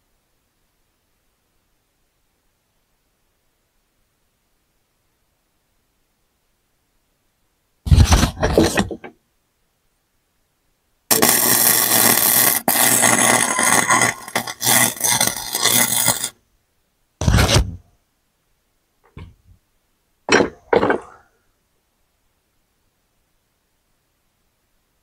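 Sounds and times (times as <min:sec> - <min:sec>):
arc welder crackling: 0:11.1 - 0:16.4.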